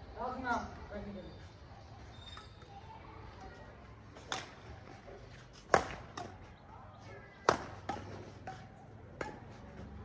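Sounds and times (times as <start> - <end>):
rackets hitting shuttlecock: 4.1 - 6.6, 7.3 - 9.9.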